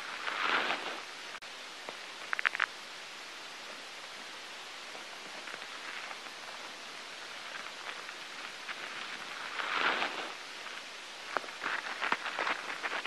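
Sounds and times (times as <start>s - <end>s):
steady hiss: 0.0s - 13.0s
faint crackling ticks: 1.8s - 2.8s.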